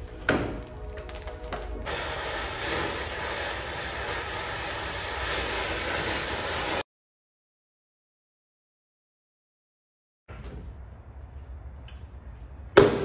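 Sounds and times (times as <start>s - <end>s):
cutting torch hissing: 1.8s - 6.8s.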